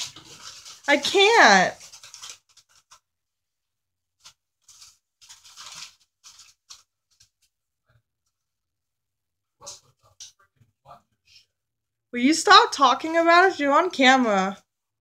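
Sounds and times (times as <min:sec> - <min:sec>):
rats rustling paper bedding: 0:00.0 - 0:03.1, 0:04.2 - 0:07.5.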